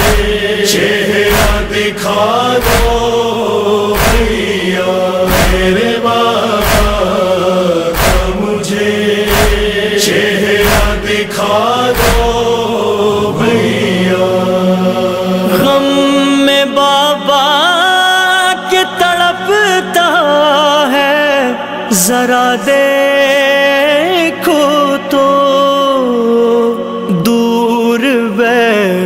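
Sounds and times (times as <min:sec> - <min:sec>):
chest-beating thuds: 0:00.0 - 0:00.5, 0:01.2 - 0:01.9, 0:02.6 - 0:03.2, 0:03.9 - 0:08.6, 0:09.3 - 0:09.9, 0:10.5 - 0:11.3, 0:11.9 - 0:12.6
men chanting a lament in unison: 0:00.0 - 0:29.0.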